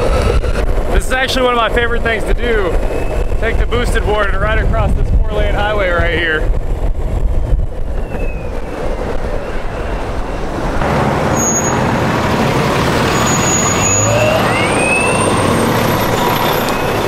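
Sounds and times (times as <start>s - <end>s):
road traffic close by: 0.0s - 0.9s, 6.5s - 17.0s
wind rumble on microphone: 0.0s - 10.9s
short rising whine: 7.2s - 17.0s.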